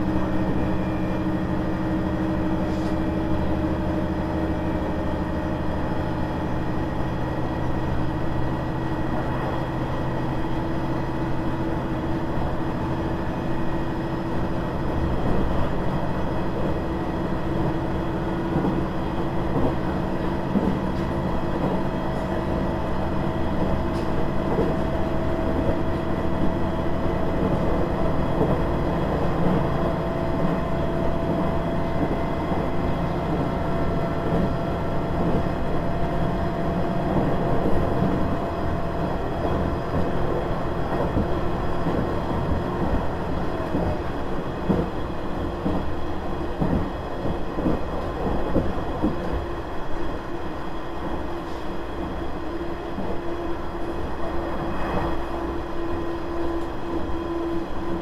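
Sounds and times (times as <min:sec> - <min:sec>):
diesel engine drone: 0:00.0 - 0:47.0
wheel and rail rumble: 0:00.0 - 0:58.0.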